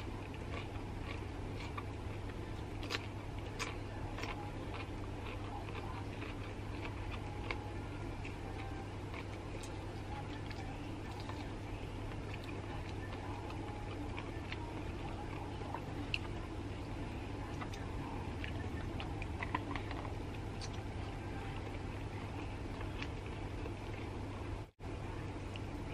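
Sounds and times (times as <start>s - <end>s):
steady low hum: 0.0s - 25.9s
chewing and mouth smacks: 0.1s - 11.5s, 17.5s - 20.8s.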